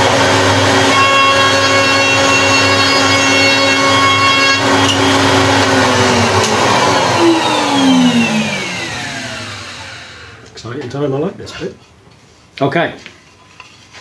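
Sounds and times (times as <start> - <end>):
router motor whining: 0.0 - 10.6.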